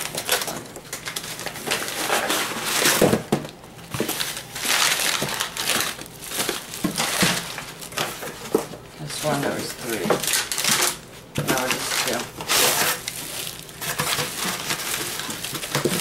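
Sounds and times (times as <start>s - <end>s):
plastic bag crinkling: 0.0s - 3.2s, 3.8s - 16.0s
packing paper crinkling: 0.0s - 16.0s.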